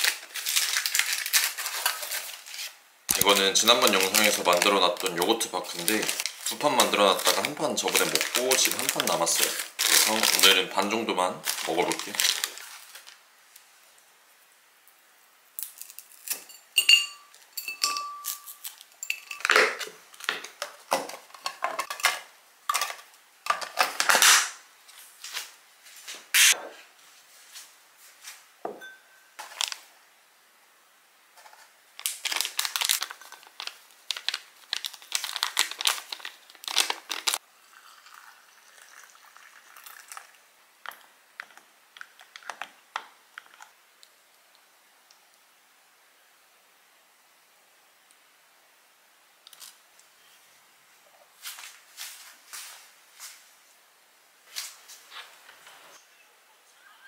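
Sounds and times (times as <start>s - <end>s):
parchment paper crinkling: 0.0s - 13.2s, 31.4s - 37.4s
tableware clinking on a table: 16.4s - 19.8s, 28.7s - 29.6s.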